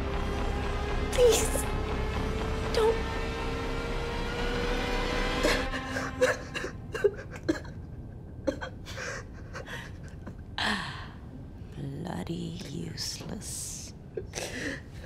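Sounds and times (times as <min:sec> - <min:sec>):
background hum: 0:05.0 - 0:15.0
man sobbing: 0:05.4 - 0:10.4.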